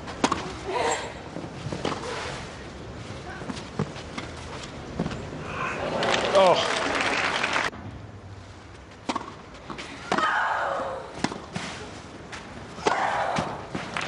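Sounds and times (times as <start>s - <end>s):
tennis ball bounces: 0.2s - 0.5s, 9.0s - 10.4s, 11.2s - 11.6s
applause: 5.9s - 7.7s.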